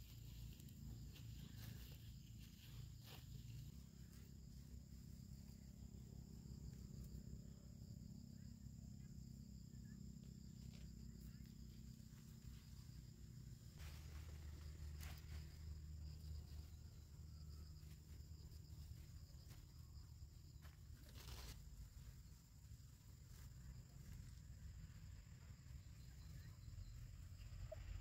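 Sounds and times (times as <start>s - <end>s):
high insect drone: 0.0s - 28.0s
faint rustles and clicks: 20.7s - 22.2s.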